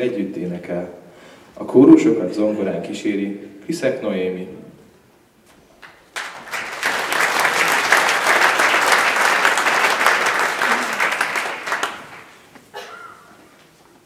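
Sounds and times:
audience applauding: 5.8s - 12.5s.

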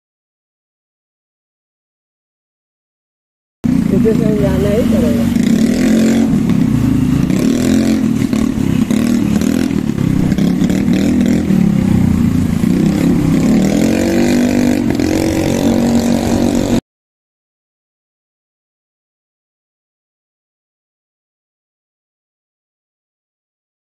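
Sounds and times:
small motorbike engine running: 3.7s - 16.8s.

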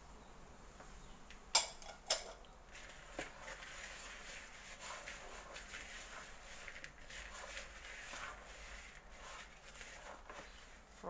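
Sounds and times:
spatula stirring dry oats: 2.2s - 11.0s.

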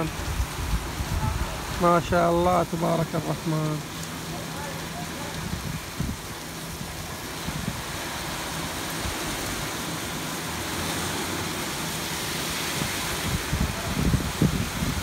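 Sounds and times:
heavy rain on pavement and cars: 0.0s - 15.0s.

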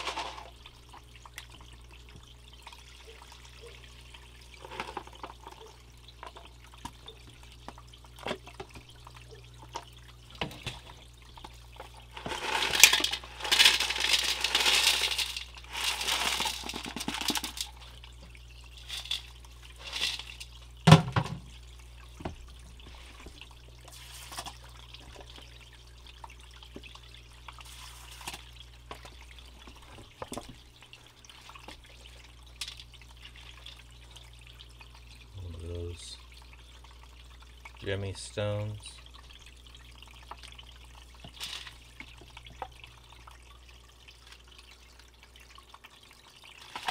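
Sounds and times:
water pouring: 0.0s - 46.9s
water splashing and trickling: 0.0s - 46.9s
clicks of gravel and stones: 12.1s - 17.7s.

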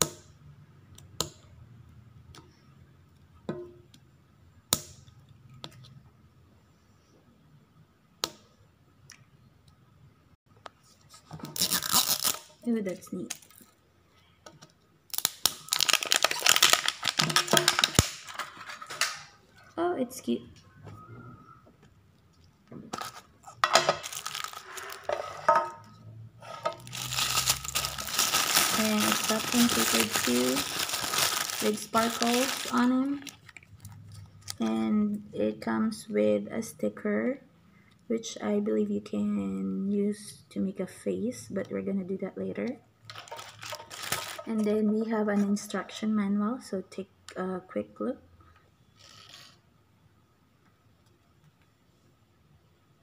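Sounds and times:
tissue paper crinkling: 15.6s - 18.0s, 24.0s - 25.1s, 26.8s - 33.6s, 43.2s - 44.5s.

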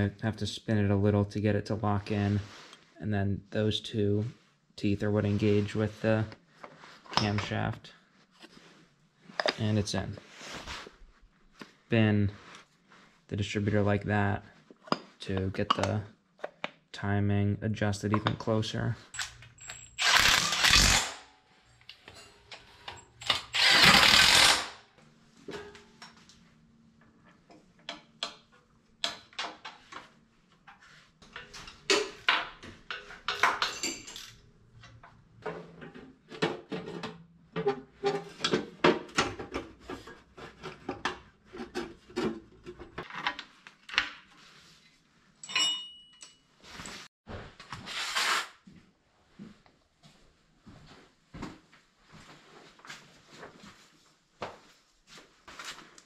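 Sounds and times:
hand tools clinking and knocking: 19.1s - 20.4s, 31.2s - 43.3s, 45.4s - 47.0s.

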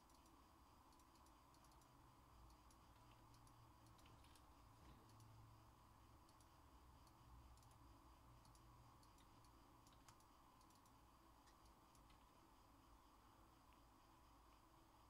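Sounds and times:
computer keyboard typing: 0.0s - 5.4s, 8.4s - 12.3s
low room hum: 0.0s - 15.0s.

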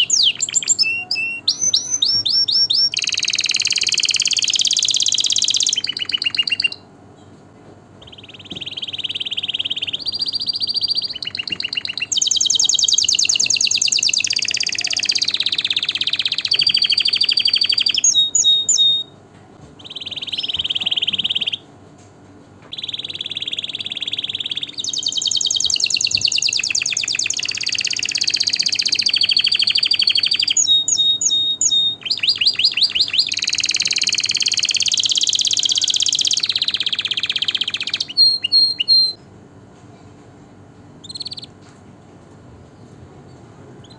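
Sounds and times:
canary singing trills: 0.0s - 7.3s, 8.0s - 19.2s, 19.8s - 21.7s, 22.7s - 39.4s, 41.0s - 41.7s, 42.7s - 43.9s.

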